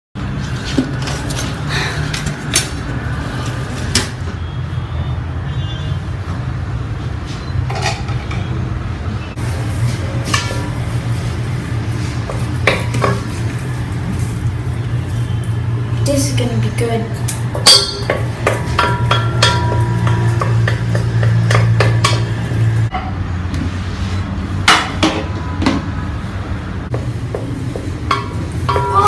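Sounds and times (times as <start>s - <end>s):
metal pots and utensils clinking: 10.2s - 10.8s, 12.3s - 13.4s, 17.3s - 23.2s, 27.8s - 29.0s.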